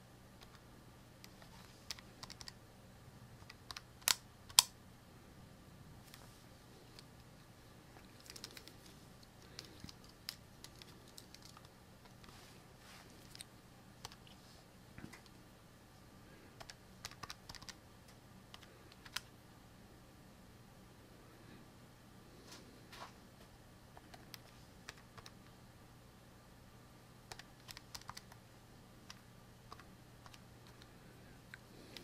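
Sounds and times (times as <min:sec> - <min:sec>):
low electrical hum: 0:00.0 - 0:32.0
keyboard typing clicks: 0:01.2 - 0:02.6, 0:03.4 - 0:04.7, 0:16.6 - 0:17.8, 0:18.5 - 0:19.3, 0:24.0 - 0:25.4, 0:27.3 - 0:28.4, 0:29.1 - 0:30.9.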